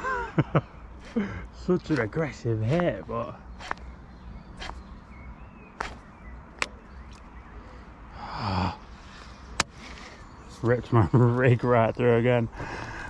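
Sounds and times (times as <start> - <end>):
man sighing and groaning: 8.1 - 9.1.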